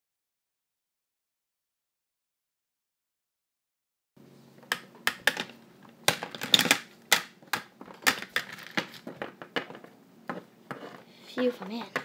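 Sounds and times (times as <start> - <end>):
plastic toy pieces knocking on wood: 6.1 - 12.0.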